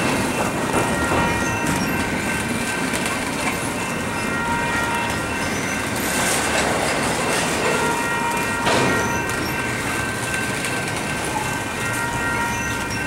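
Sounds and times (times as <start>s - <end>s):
high ringing wheel tones: 0.0s - 13.0s
train rumbling and rattling: 0.0s - 13.0s.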